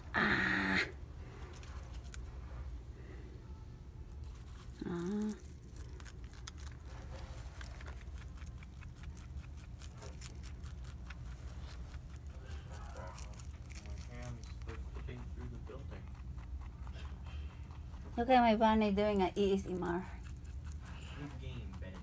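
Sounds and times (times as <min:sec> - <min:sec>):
rabbit chewing greens: 0:00.2 - 0:22.0.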